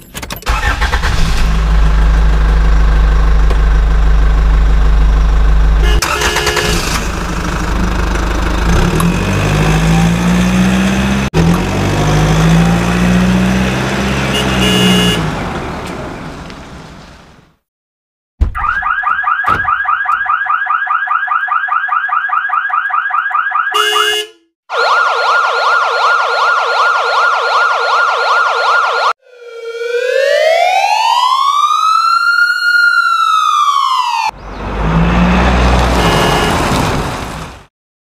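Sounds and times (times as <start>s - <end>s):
engine noise: 0.5s - 17.4s, 34.4s - 37.6s
horn blast: 5.8s - 7.0s, 14.2s - 15.3s, 35.9s - 36.7s
siren yelping and wailing: 18.6s - 34.4s.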